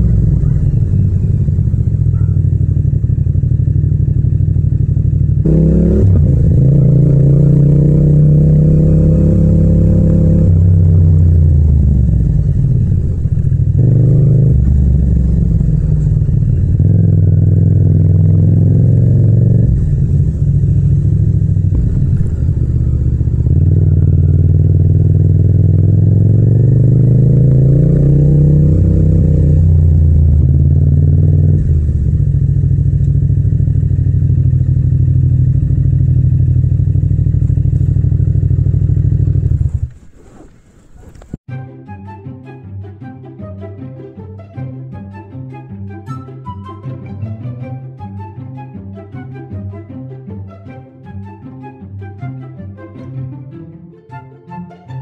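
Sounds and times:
motorcycle engine revving: 0.0s - 41.5s.

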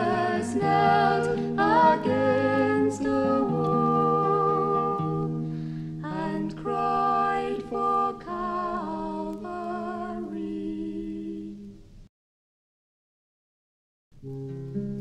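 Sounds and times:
voices singing in harmony: 0.0s - 11.9s.

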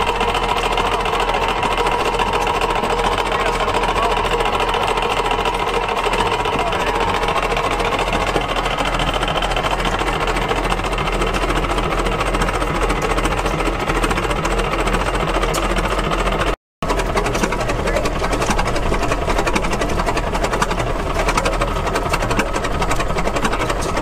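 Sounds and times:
engine mechanical clatter: 0.0s - 24.0s.

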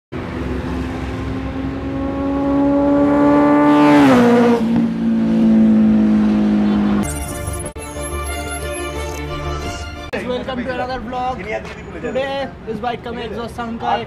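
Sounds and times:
motorcycle engine passing at high revs: 0.2s - 7.0s.

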